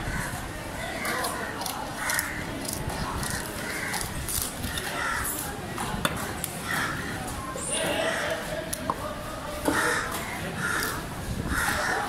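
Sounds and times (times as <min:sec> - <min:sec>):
crows cawing: 0:03.3 - 0:04.1, 0:04.9 - 0:05.4, 0:06.6 - 0:07.2, 0:09.7 - 0:12.0.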